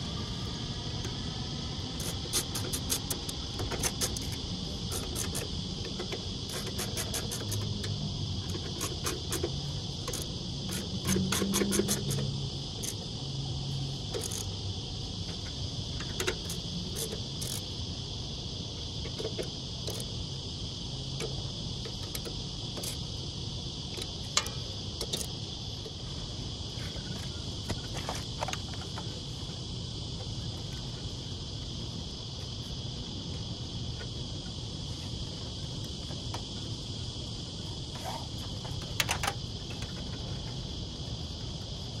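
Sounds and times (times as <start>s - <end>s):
insect trilling: 0.0s - 15.1s.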